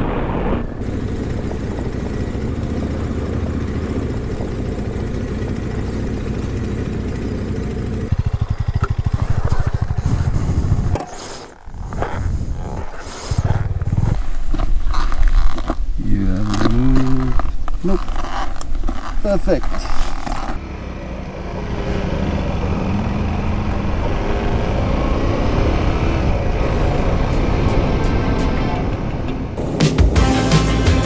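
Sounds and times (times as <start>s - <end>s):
wind noise: 0.0s - 2.2s, 8.1s - 17.8s
motorcycle engine: 0.0s - 31.0s
riding gear rustling: 0.7s - 20.6s.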